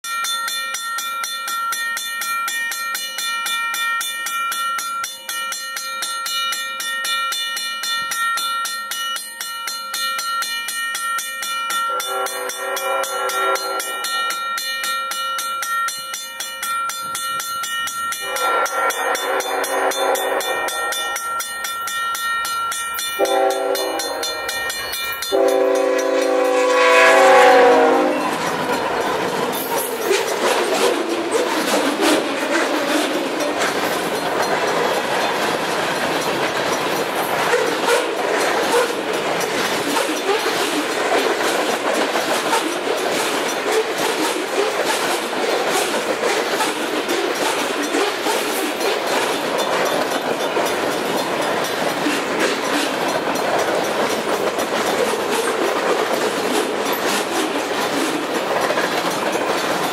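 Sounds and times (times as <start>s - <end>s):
crossing bell ringing: 0.0s - 59.9s
locomotive horn blasts: 11.9s - 14.3s, 18.2s - 21.2s, 23.2s - 24.4s, 25.3s - 28.5s
locomotive engine and wheels rushing: 17.0s - 59.9s.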